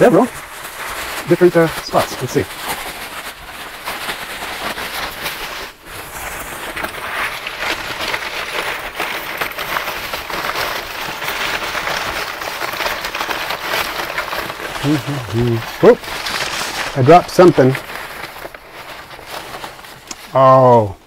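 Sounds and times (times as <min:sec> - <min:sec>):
packing paper crinkling: 0:00.0 - 0:21.0.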